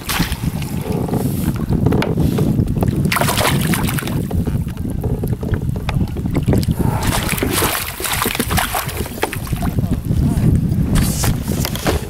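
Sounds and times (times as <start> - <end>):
water splashing into landing net: 0.0 - 0.6, 3.1 - 4.2, 7.0 - 9.8
wind rumble on microphone: 0.0 - 12.0
fish splashing at water surface: 6.6 - 9.8.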